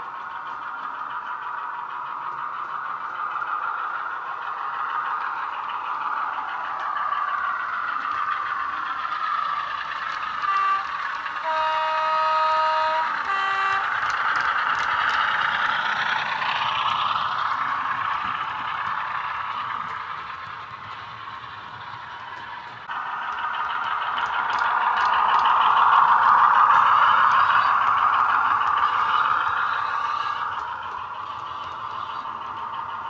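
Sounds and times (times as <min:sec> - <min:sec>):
model diesel engine sound: 0:00.0 - 0:33.0
locomotive horn toots: 0:10.4 - 0:14.2.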